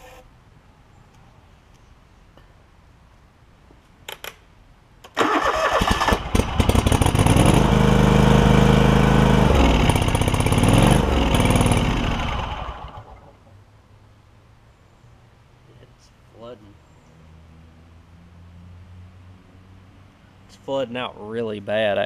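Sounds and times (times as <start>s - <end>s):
lawn tractor engine starting and running: 5.1s - 13.4s.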